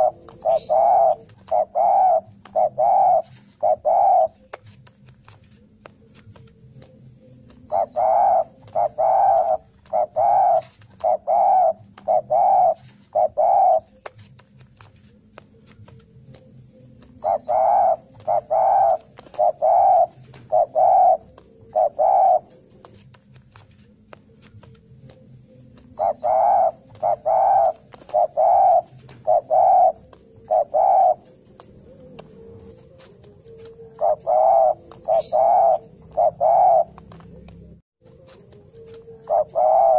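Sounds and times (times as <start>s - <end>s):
dove cooing: 0.0s - 4.8s, 5.6s - 39.9s.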